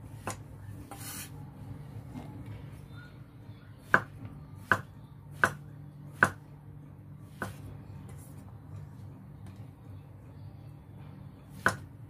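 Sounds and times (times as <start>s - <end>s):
cleaver chopping on wooden board: 3.9s - 5.6s, 6.2s - 6.4s, 11.6s - 11.8s.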